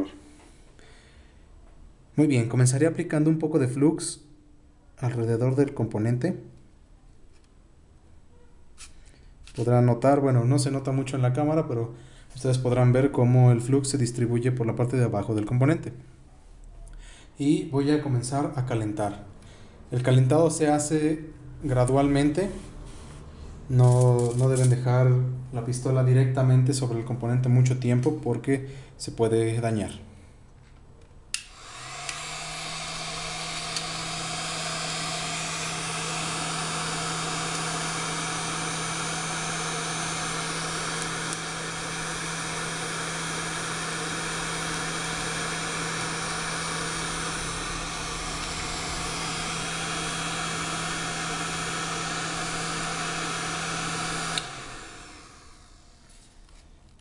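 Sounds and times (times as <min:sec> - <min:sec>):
heat gun blowing hot air: 0:31.4 - 0:56.2.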